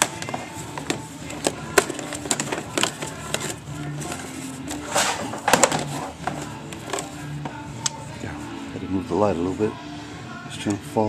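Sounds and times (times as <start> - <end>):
faint background music: 0.0 - 11.0
metal scrape: 3.3 - 7.2.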